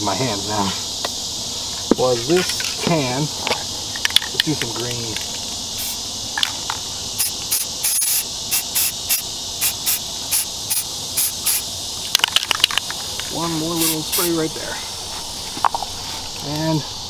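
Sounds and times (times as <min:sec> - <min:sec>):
insects: 0:00.0 - 0:17.0
spray can hissing: 0:05.4 - 0:06.0, 0:07.1 - 0:12.3, 0:13.0 - 0:14.5.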